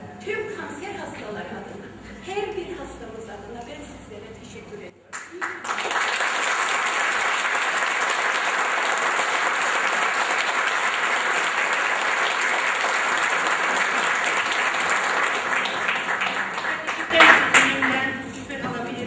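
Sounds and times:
audience applause: 5.1 - 18.1.

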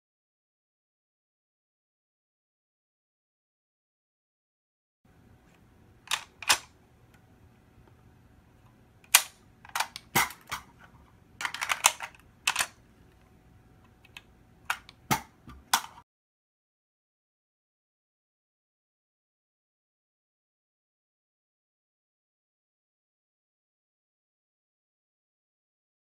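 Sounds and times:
rifle magazine metallic clicks: 6.1 - 6.7, 9.0 - 10.6, 11.4 - 12.8.

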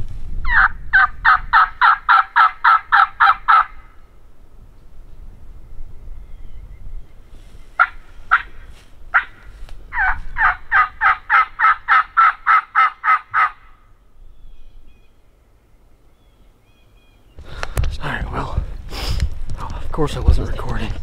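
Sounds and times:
turkey call notes: 0.4 - 4.0, 7.4 - 15.2.

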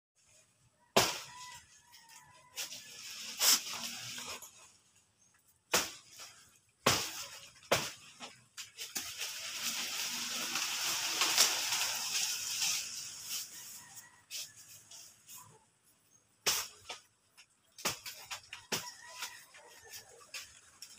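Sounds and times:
banana leaves rustling: 1.0 - 5.0, 5.6 - 15.6.

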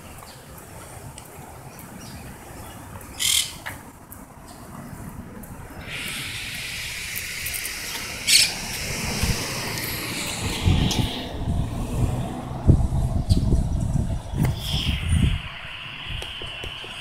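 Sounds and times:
traffic hiss: 0.0 - 17.0
parakeet high calls: 3.2 - 3.6, 7.8 - 8.9.

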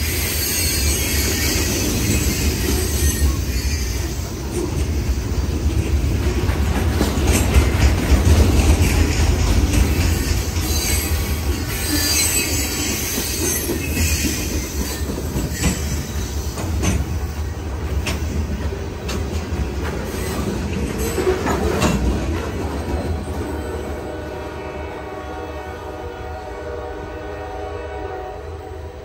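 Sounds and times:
train wheels rumbling on rail: 0.0 - 29.0
high-pitched wheel squeal: 0.1 - 4.3, 10.2 - 16.4.

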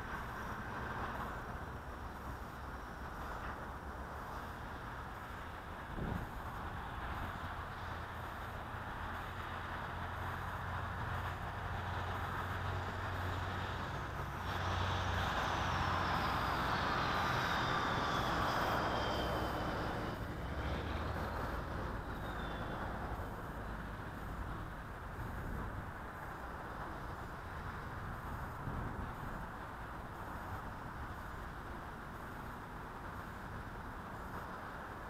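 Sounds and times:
traffic rumble: 0.0 - 35.0
vehicle passing: 6.0 - 25.6.

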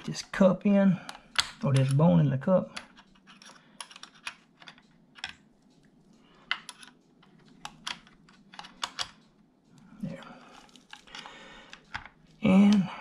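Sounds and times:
small metal parts clicking: 2.7 - 13.0.

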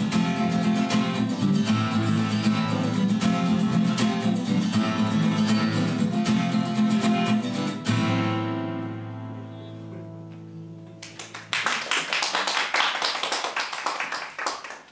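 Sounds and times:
acoustic guitars strumming: 0.0 - 11.0.

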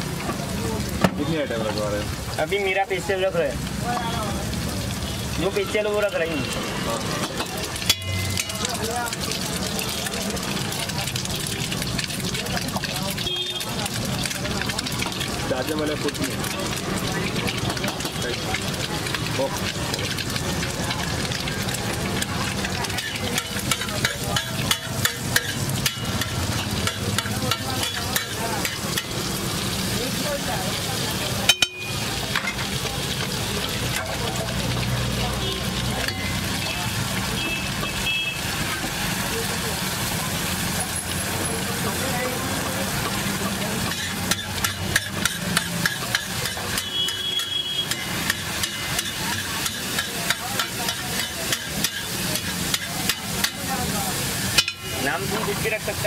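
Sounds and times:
omelette sizzling in oil: 0.0 - 56.0
spatula scraping on griddle: 21.6 - 30.0, 40.8 - 56.0.

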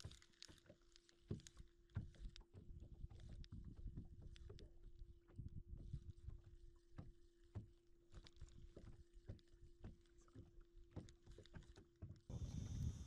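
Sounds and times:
low hum: 12.3 - 13.0.

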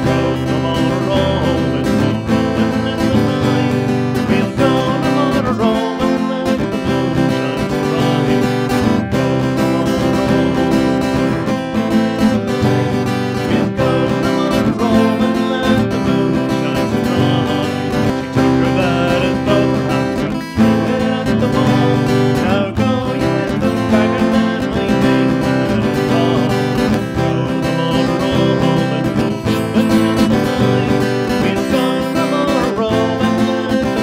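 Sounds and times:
acoustic guitar strumming: 0.0 - 34.0
man singing: 0.0 - 34.0.

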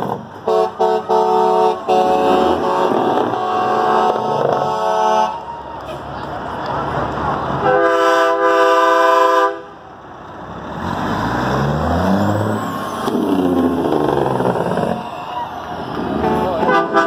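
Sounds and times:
truck diesel engine passing: 0.0 - 17.0
truck air horn: 0.4 - 6.1, 7.6 - 9.8, 16.0 - 17.0.

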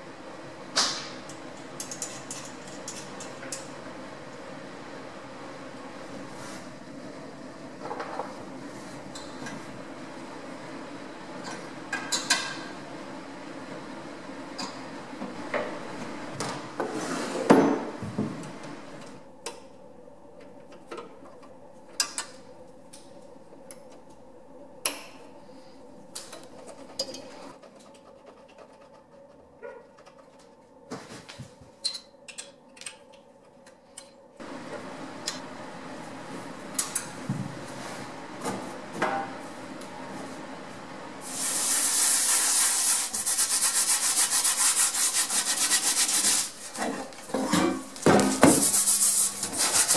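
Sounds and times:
sanding disc rubbing on paint: 41.5 - 46.6, 48.5 - 49.9.

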